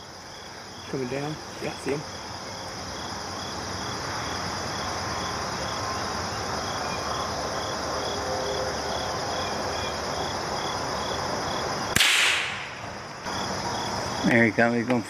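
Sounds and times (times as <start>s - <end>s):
crickets chirping: 0.0s - 15.0s
sharp gunshot: 11.9s - 12.9s.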